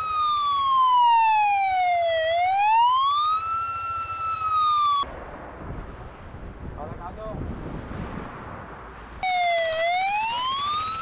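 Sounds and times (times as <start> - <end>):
fire truck siren wailing: 0.0 - 5.1, 9.2 - 11.0.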